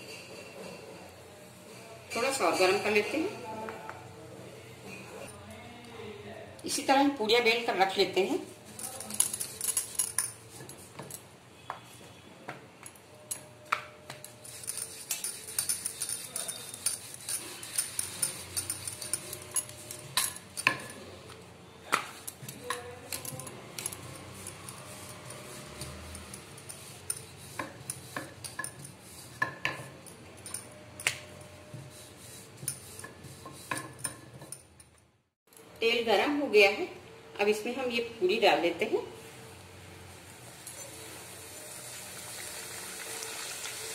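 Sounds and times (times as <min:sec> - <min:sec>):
rolling pin rolling dough: 0:13.9 - 0:34.5.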